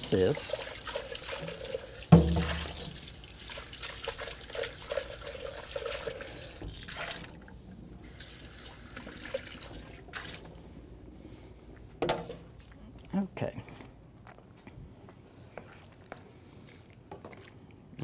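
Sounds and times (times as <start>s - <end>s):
tap water running into sink: 0.0s - 7.4s.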